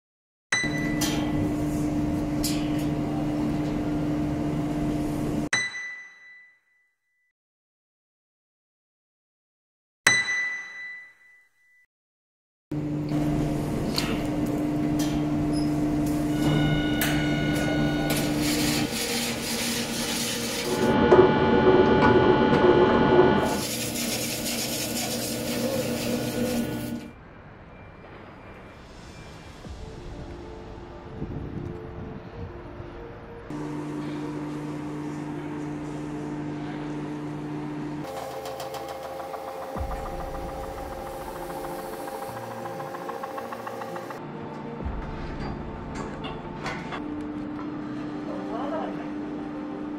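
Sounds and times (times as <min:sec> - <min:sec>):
mechanical hum with rattle: 0:00.6 - 0:05.5, 0:12.7 - 0:27.4, 0:33.5 - 0:49.9
ringing metallic ding: 0:05.6 - 0:07.0, 0:10.1 - 0:11.8, 0:16.3 - 0:18.2.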